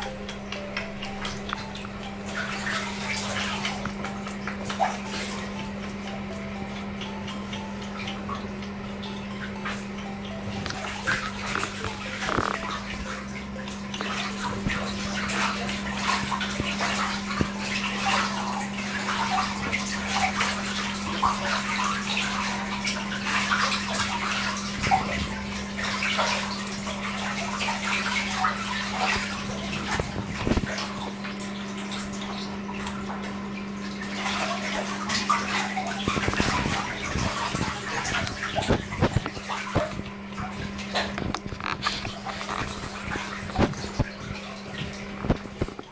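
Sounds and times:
steady low hum: 0.0s - 45.9s
ducks splashing in water: 10.0s - 45.9s.

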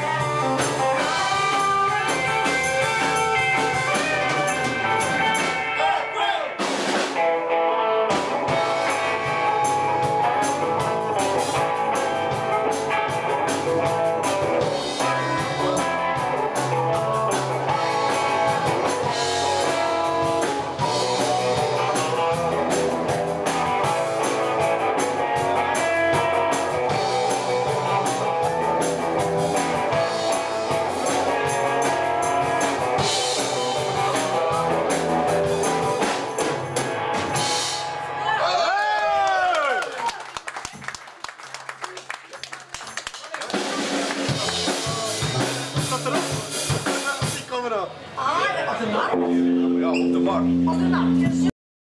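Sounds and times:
blues harmonica: 0.0s - 5.7s
drum kit beat: 0.0s - 5.8s, 6.4s - 38.2s, 43.4s - 47.6s
electric guitars: 0.0s - 39.8s, 43.5s - 47.4s, 49.0s - 51.5s.

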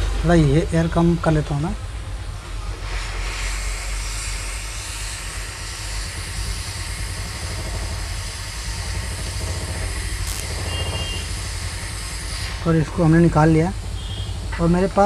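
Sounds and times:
hot air blowing hiss: 2.5s - 14.5s.

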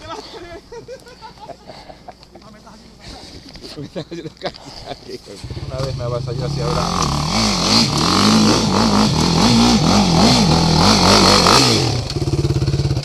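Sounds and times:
atv engine revving and idling: 5.4s - 13.0s.

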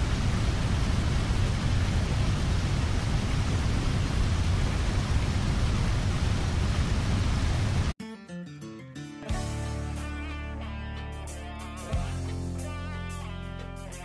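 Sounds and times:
heavy flickering low rumble: 0.0s - 7.9s.

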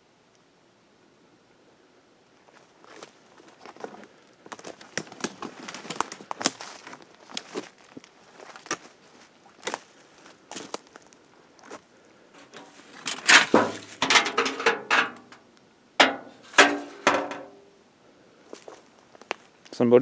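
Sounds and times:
light footsteps: 2.5s - 15.3s, 18.5s - 19.8s.

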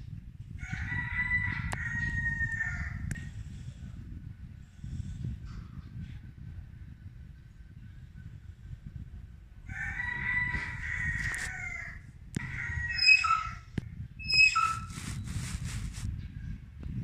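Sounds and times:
rooster crowing: 0.6s - 3.1s, 9.7s - 13.7s.

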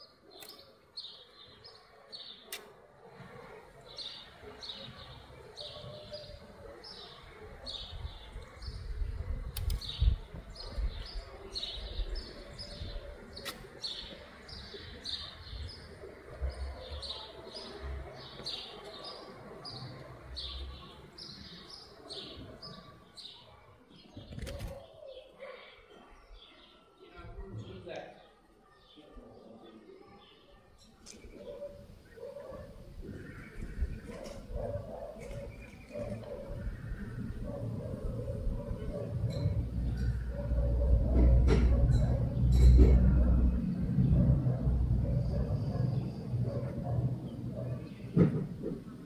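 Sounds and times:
songbird chirping: 0.0s - 2.8s, 3.6s - 49.0s
sharp clicks: 9.5s - 9.9s.

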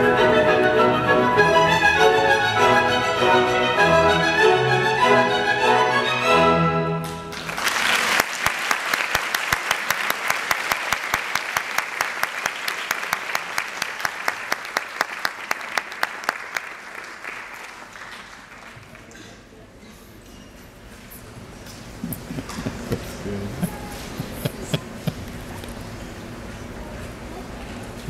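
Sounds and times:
orchestral string music: 0.0s - 7.4s
audience applause: 7.0s - 19.5s.

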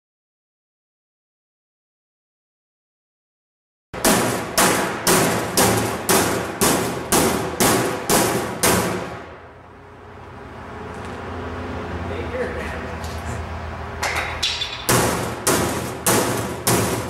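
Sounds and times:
hammer striking canoe hull: 4.0s - 9.4s, 14.0s - 17.0s.

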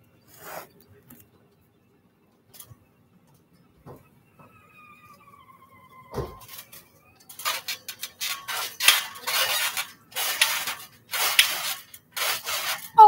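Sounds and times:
trampoline springs squeaking: 4.2s - 13.0s.

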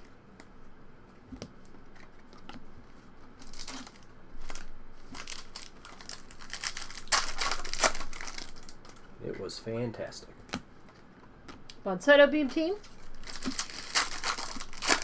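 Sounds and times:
foil wrapper crinkling and tearing: 3.4s - 9.0s, 12.8s - 15.0s
cards clicking and rustling: 13.2s - 15.0s.

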